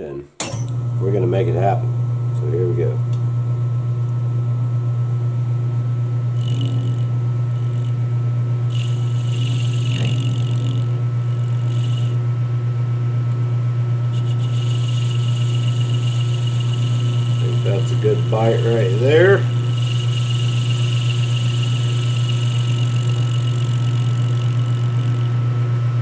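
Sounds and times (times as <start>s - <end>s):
metal lathe humming: 5.7s - 26.0s
lathe tool cutting hiss: 6.4s - 8.0s, 8.7s - 12.2s, 14.1s - 25.4s.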